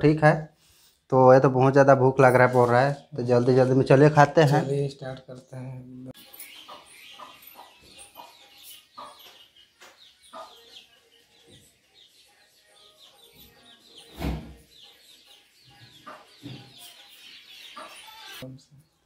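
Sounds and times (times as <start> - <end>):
birds chirping: 0.0 - 19.0
chickens clucking: 4.5 - 18.9.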